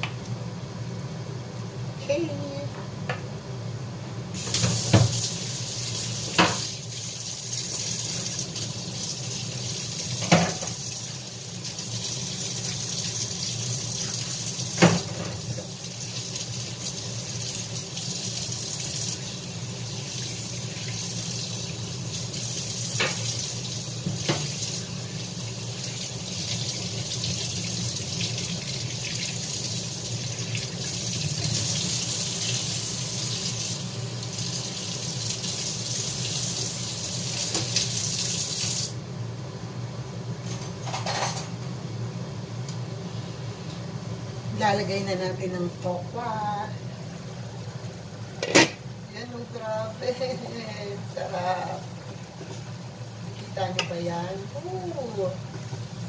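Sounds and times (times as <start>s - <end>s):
water running from a tap: 4.4s - 39.0s.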